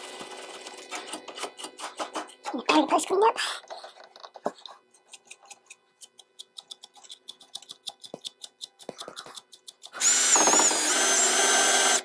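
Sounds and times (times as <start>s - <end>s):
rapid regular clicking: 5.1s - 10.4s.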